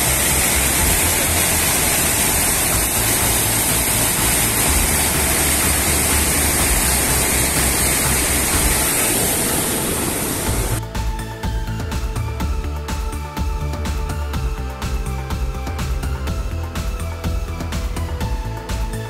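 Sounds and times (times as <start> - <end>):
waterfall and stream roaring: 0.0 - 10.8.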